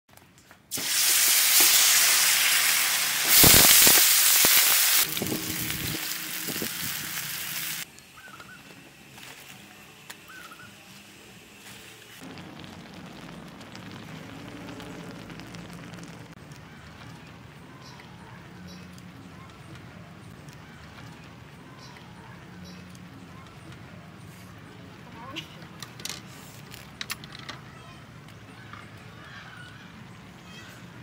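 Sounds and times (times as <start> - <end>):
water sizzling in a hot wok: 0.7 - 7.9, 10.2 - 16.4.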